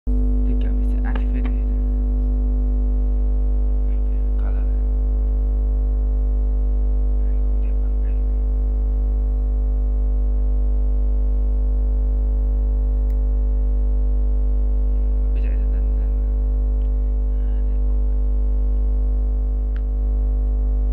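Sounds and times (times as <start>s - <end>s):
electrical hum and buzz: 0.0s - 20.9s.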